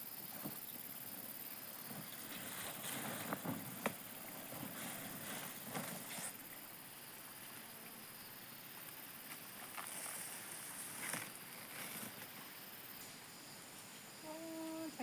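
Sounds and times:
leaf and dry grass rustling: 1.7 - 6.6, 8.8 - 12.9.

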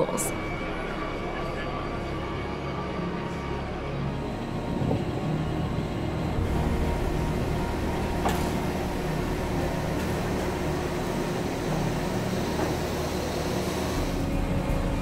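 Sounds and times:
machinery hum: 0.0 - 15.0
fan-like noise: 3.4 - 15.0.

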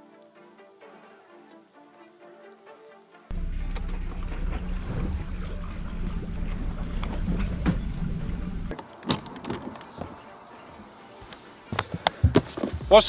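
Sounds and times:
engine running with low hum: 3.3 - 8.7.

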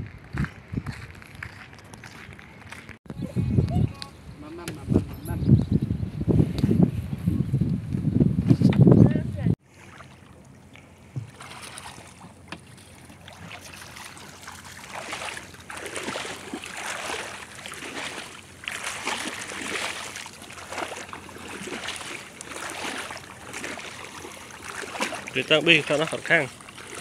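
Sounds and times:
water sloshing around wading legs: 9.6 - 27.0.

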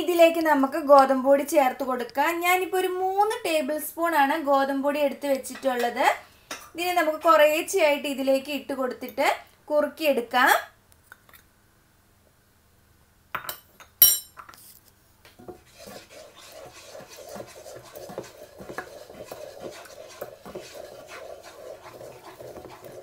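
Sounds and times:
wooden spatula scraping pan: 15.4 - 23.0.

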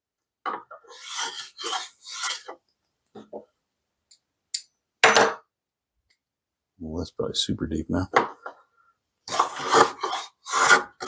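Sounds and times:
hand plane scrape: 0.7 - 2.6, 9.3 - 11.0
hand plane rasping rubs: 0.8 - 2.6, 9.3 - 11.0.

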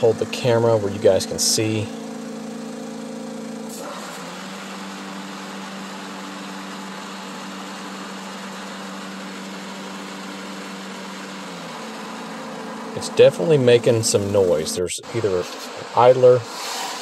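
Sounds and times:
mower engine hum: 0.0 - 17.0
whir of spinning mower blades: 0.0 - 17.0.

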